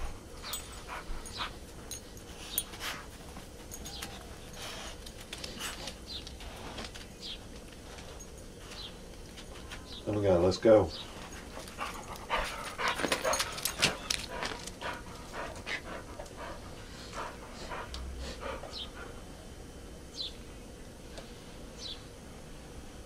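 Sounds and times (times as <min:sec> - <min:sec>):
dogs panting: 0:00.0 - 0:09.8, 0:10.9 - 0:19.5.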